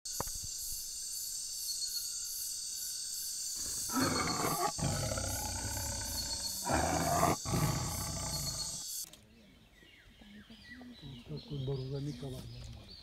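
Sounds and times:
tiger roaring: 0:03.7 - 0:08.8.

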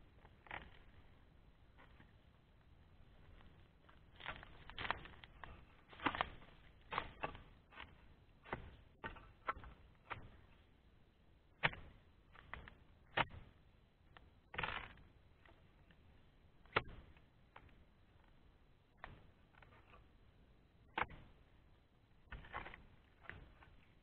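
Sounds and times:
chisel chopping palm stalks: 0:04.2 - 0:10.4, 0:11.6 - 0:13.4.

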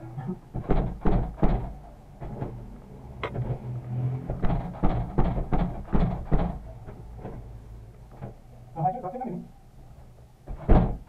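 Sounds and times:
thumps and knocks on door: 0:00.5 - 0:02.6, 0:04.2 - 0:07.4, 0:10.4 - 0:11.0.

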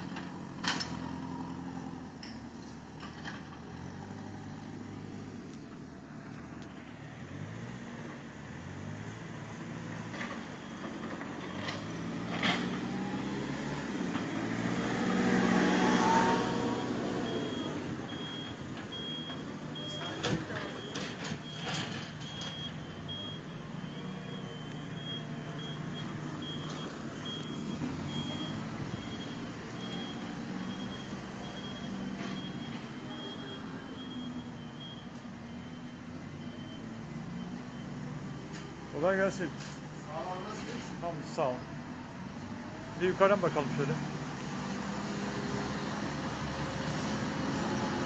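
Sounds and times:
vehicle passing close: 0:00.0 - 0:34.5, 0:36.3 - 0:48.0
diesel machinery engines running: 0:00.0 - 0:48.0
reversing alarm beeping: 0:10.4 - 0:11.8, 0:16.0 - 0:38.0.

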